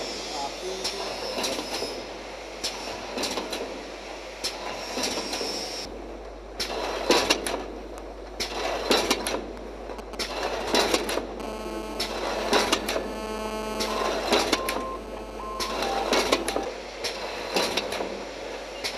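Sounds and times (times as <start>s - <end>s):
steady machine noise: 10.0s - 17.8s.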